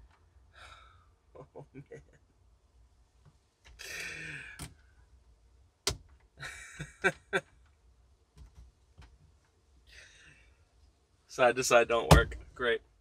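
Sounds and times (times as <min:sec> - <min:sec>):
man sighing: 0:00.6 - 0:01.1, 0:03.8 - 0:04.7.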